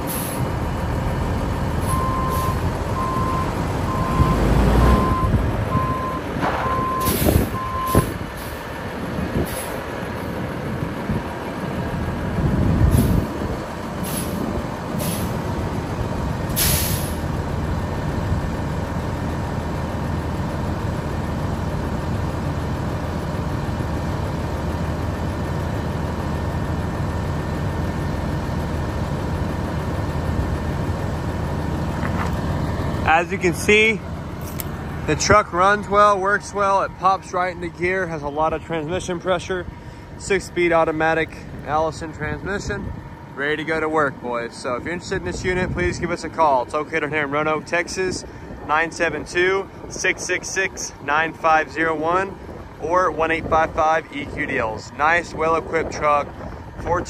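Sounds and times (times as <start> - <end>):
diesel truck engine running: 0.0 - 57.0
backup alarm beeping: 1.8 - 8.1
air brake hisses: 7.0 - 8.5, 14.0 - 14.4, 15.0 - 15.4, 16.5 - 17.2.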